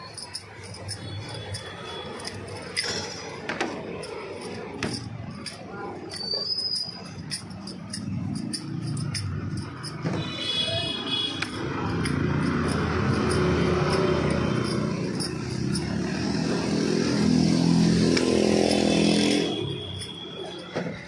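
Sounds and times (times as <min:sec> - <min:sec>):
vehicle engine running: 0:11.4 - 0:20.3.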